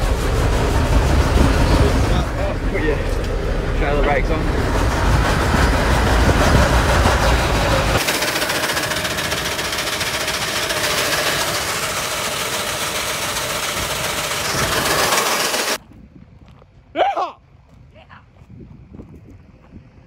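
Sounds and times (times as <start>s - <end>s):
truck engine idling: 0.0s - 15.8s.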